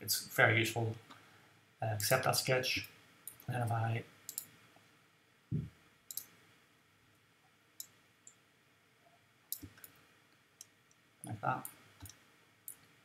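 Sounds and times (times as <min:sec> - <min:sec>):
computer mouse clicks: 0:04.3 - 0:04.5, 0:06.1 - 0:06.3, 0:07.8 - 0:08.4, 0:09.5 - 0:10.0
soft low thump: 0:05.5 - 0:05.8.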